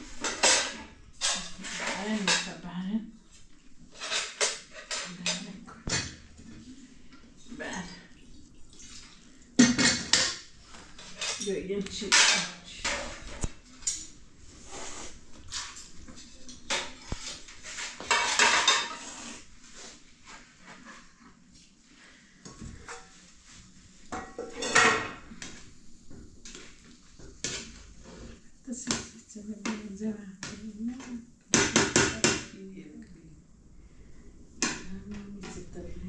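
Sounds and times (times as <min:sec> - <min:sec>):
steel dishes clattering: 0:00.2 - 0:02.6, 0:03.9 - 0:06.2, 0:09.6 - 0:14.2, 0:15.5 - 0:19.2, 0:24.2 - 0:25.3.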